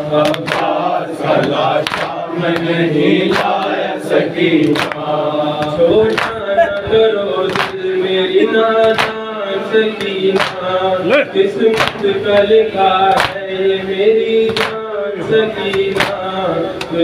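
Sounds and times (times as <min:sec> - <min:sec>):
men chanting a lament: 0:00.0 - 0:17.0
hand slaps on chest: 0:08.8 - 0:09.2.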